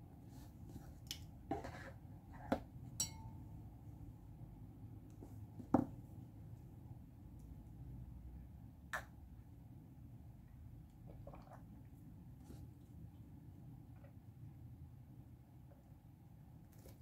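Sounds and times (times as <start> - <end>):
glass cup clinking: 3.0 - 3.4.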